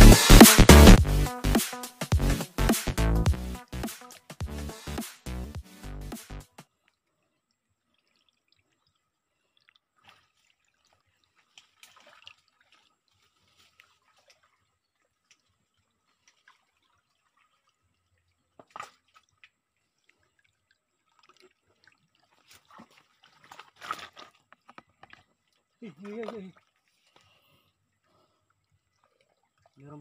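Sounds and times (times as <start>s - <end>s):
water drips and small splashes: 6.6s - 30.0s.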